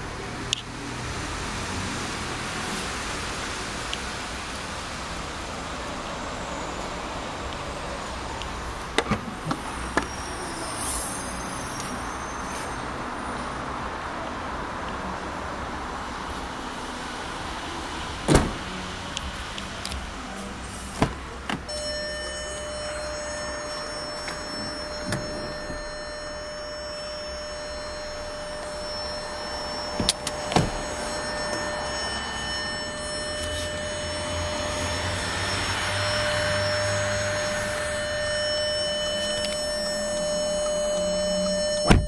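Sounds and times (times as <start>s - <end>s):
car door thump: 18.3s - 18.6s, 30.0s - 31.6s
car door latches clicking: 29.9s - 31.7s.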